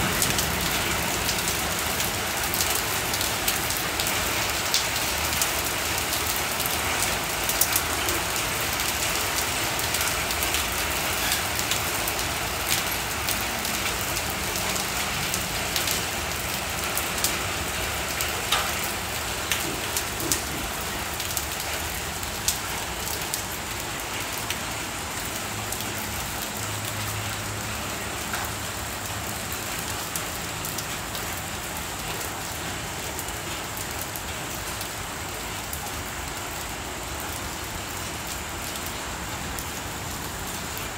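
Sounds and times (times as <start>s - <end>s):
hailstones ticking: 0.0s - 14.5s
heavy rain on concrete: 0.0s - 40.9s.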